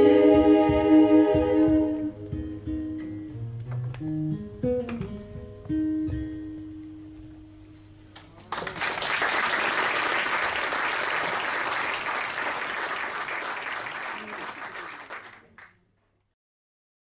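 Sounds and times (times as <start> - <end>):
audience applauding: 8.4 - 15.7.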